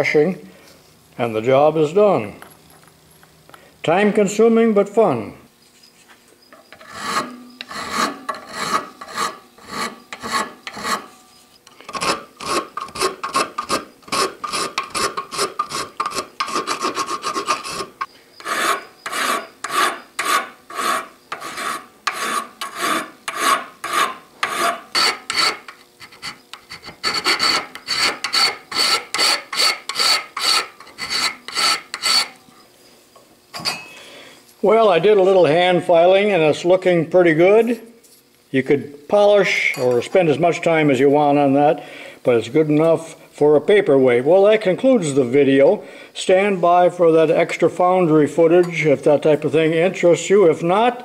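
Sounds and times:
file rasping on metal: 6.6 - 11.1, 11.9 - 32.4.

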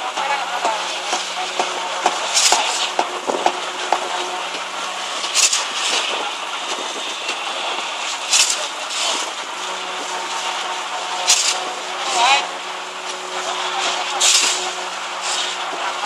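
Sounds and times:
concrete pump truck running: 0.0 - 16.0
short hissing bursts: 5.3 - 6.2, 14.2 - 15.6.

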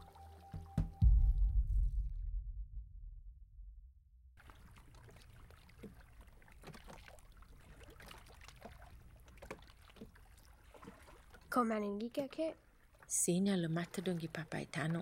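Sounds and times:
paddles splashing in water: 4.4 - 15.0
soft wash of water: 4.4 - 15.0.

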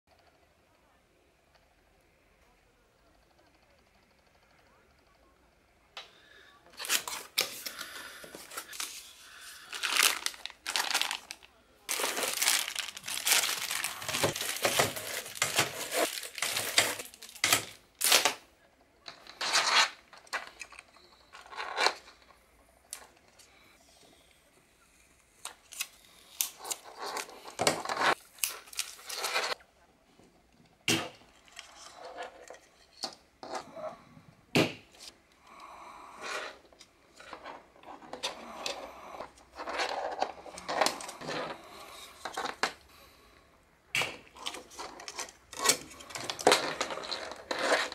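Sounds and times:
plastic bags crinkling: 6.8 - 18.4, 26.4 - 29.6, 44.3 - 47.9
plastic frames clicking: 9.7 - 18.4.

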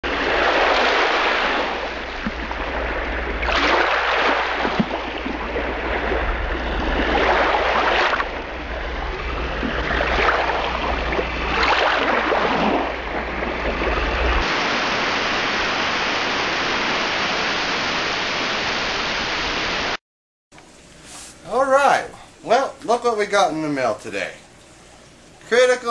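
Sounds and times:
waves washing: 0.0 - 20.0
steady surf hiss: 0.1 - 11.6, 12.2 - 20.0, 20.6 - 25.9
low rumble: 4.7 - 14.4.

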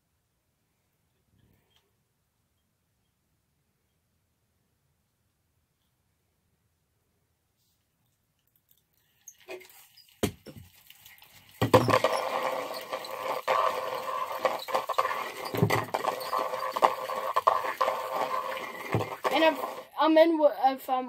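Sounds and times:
fishing reel whirring and clicking: 11.6 - 19.9.

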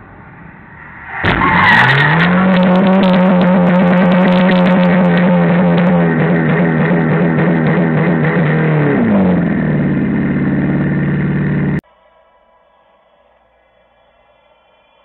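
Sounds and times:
car engine revving high: 0.0 - 11.8
tyres spinning: 0.8 - 8.4.

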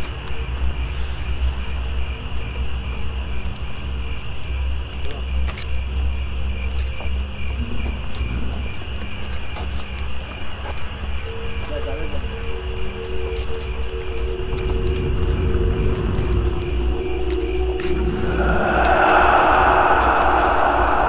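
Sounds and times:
crickets chirping: 0.0 - 21.0
low rumble: 14.4 - 21.0.

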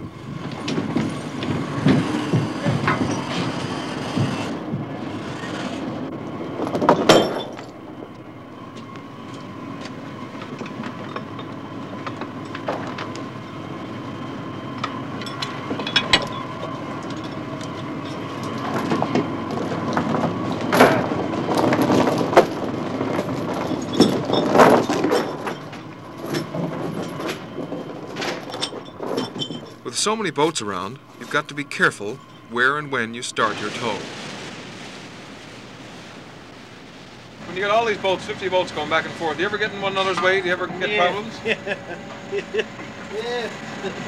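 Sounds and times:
deck machinery running: 0.0 - 44.0
metal chain clanking and rattling: 0.4 - 4.6, 6.6 - 8.1, 10.4 - 29.9.

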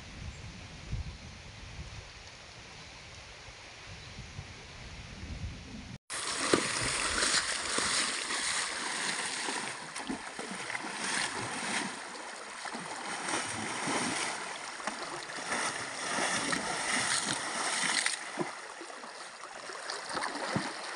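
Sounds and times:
hooves splashing in water: 6.1 - 20.9
shallow stream rushing: 6.1 - 20.9.

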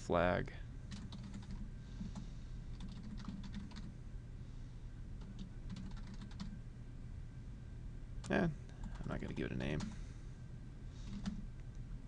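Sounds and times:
faint low hum: 0.0 - 12.0
keyboard keys clicking: 2.8 - 3.9, 5.2 - 6.5.

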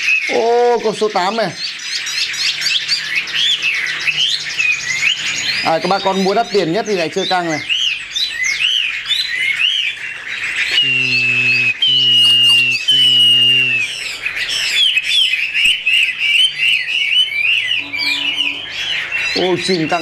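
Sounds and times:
birds singing chirps and warbles: 0.0 - 20.0
long whistled bird notes: 10.6 - 20.0.

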